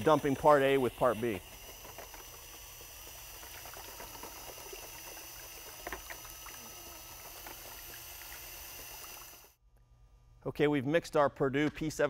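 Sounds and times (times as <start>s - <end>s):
liquid churning in a plastic bucket: 0.0s - 9.6s.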